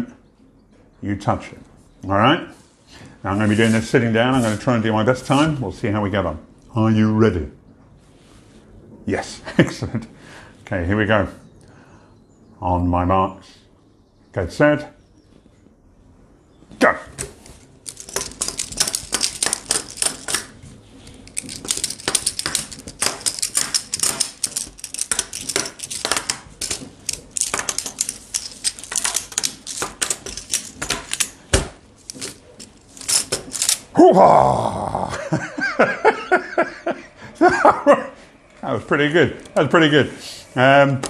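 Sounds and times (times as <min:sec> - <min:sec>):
plastic magnetic tiles clicking: 0:17.9 - 0:20.5, 0:21.3 - 0:31.4
man exclaiming: 0:33.9 - 0:35.3.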